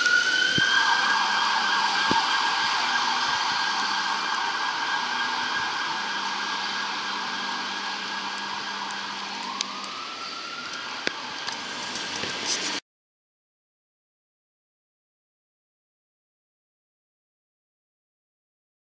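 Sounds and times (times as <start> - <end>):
emergency vehicle siren: 0.0 - 12.8.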